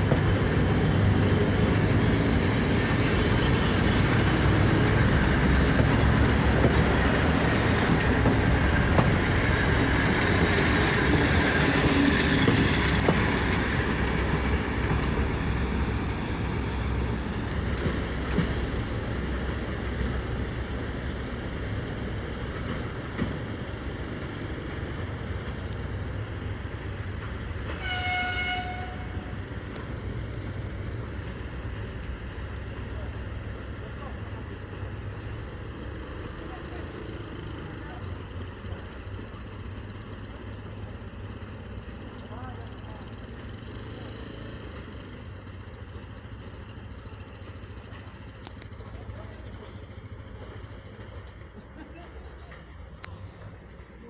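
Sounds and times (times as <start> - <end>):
diesel engine: 0.0 - 54.0
train wheels on rails: 0.0 - 54.0
train horn blast: 27.7 - 29.3.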